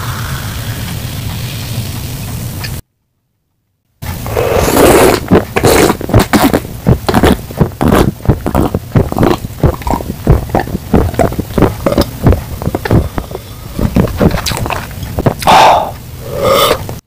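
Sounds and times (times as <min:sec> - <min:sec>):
person gulping soda: 0:04.2 - 0:17.0
loud burp: 0:15.4 - 0:16.9.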